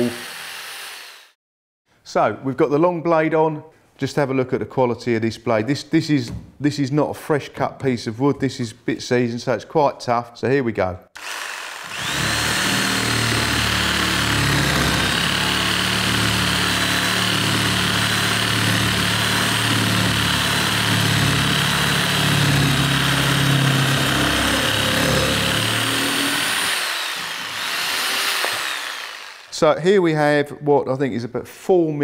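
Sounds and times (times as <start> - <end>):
reciprocating saw cutting log: 0.0 - 1.4, 11.2 - 29.6.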